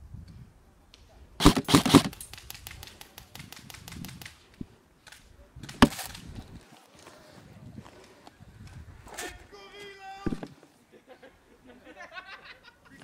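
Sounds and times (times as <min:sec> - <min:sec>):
airsoft gun rapid shots: 0:01.4 - 0:04.3.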